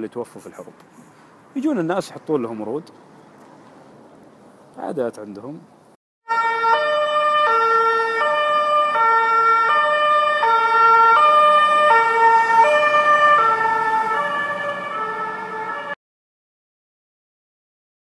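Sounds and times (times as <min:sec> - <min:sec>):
two-tone siren: 0:06.2 - 0:16.0.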